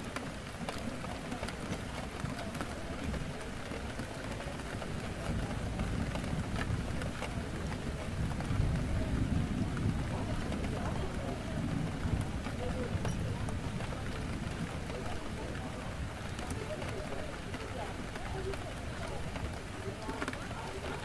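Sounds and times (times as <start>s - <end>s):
indistinct cafe chatter: 0.0s - 21.0s
rain on a window: 0.0s - 21.0s
raindrop ticks: 0.0s - 21.0s.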